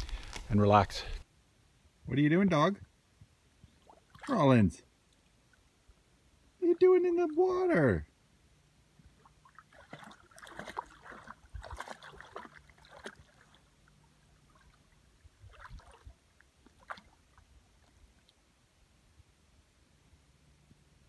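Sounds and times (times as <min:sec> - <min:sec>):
dog splashing in water: 0:09.4 - 0:17.9.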